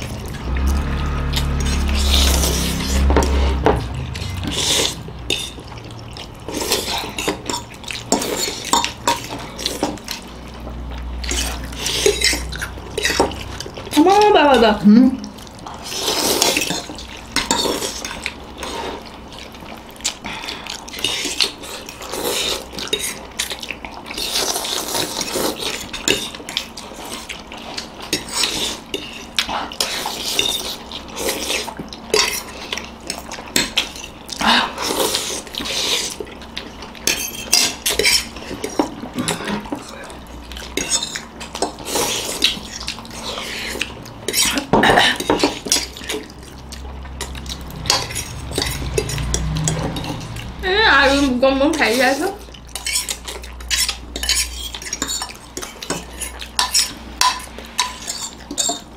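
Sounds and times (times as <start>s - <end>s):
people slurping noodles: 0.0s - 10.2s, 15.2s - 19.2s, 20.1s - 26.2s, 26.8s - 51.3s
forks clinking on ceramic plates: 52.8s - 58.9s.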